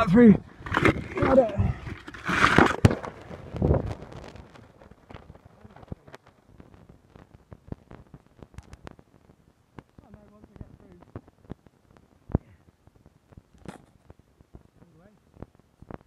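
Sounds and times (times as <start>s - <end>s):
stones clicking and scraping: 0.5s - 9.0s, 13.4s - 14.2s.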